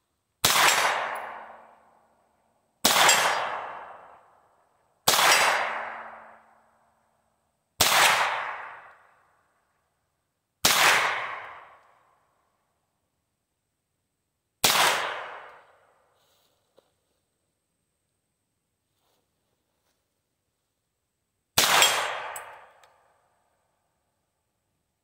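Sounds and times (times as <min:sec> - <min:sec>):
pistol gunshots: 0:00.4 - 0:01.7, 0:02.8 - 0:04.2, 0:05.0 - 0:06.4, 0:07.8 - 0:08.9, 0:10.6 - 0:11.8, 0:14.6 - 0:15.6, 0:21.6 - 0:22.8.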